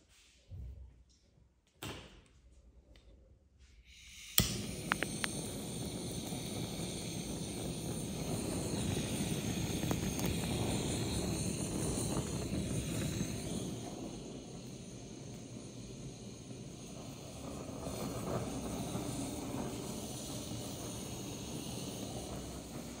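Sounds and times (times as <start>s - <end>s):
blowtorch flame hissing: 3.9s - 23.0s
blowtorch igniter click: 4.3s - 13.6s.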